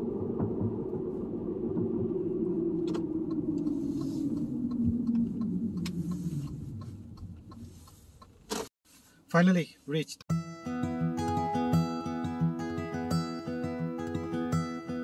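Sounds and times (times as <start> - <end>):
car engine and road drone: 0.0 - 8.7.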